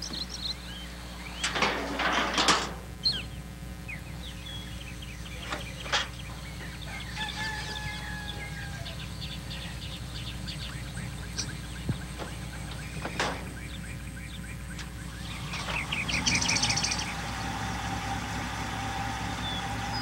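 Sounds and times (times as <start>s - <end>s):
small birds chirping: 0.0s - 1.7s, 3.0s - 20.0s
faint drawn-out call: 3.0s - 17.1s
rooster crowing: 6.5s - 9.8s.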